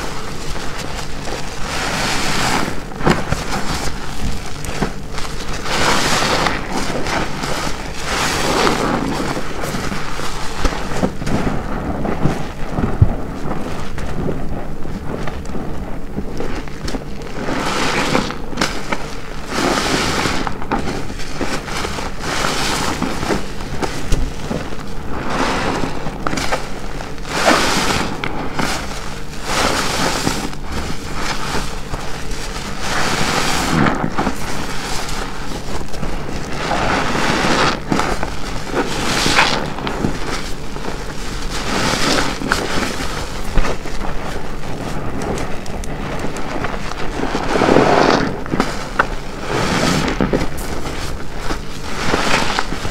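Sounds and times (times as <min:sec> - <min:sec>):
wet sponge squelching: 0:00.0 - 0:52.9.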